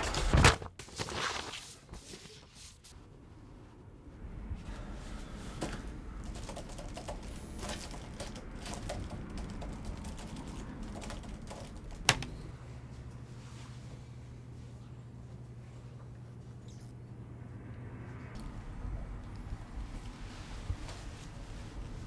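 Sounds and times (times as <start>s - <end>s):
steady low hum: 2.9s - 22.0s
computer keyboard typing: 6.2s - 12.3s.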